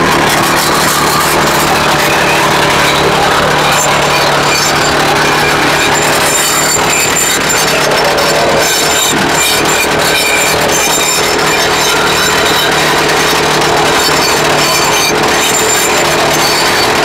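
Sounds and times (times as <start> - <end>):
rock drill hammering: 0.0 - 17.0.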